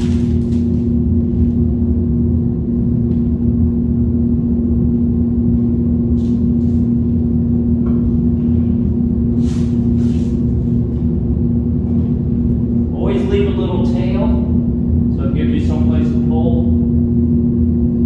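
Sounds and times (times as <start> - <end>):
tape and paper peeling: 0.0 - 1.6
exhaust fan humming: 0.0 - 18.0.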